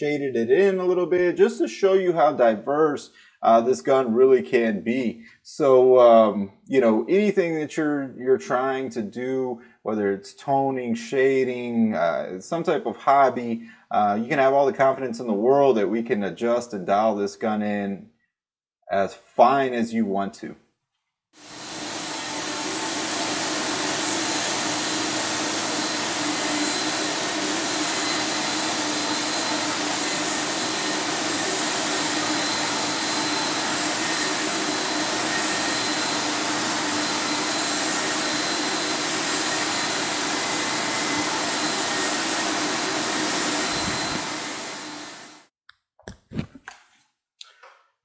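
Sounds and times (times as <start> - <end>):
turbine blowing air rushing hiss: 21.4 - 45.5.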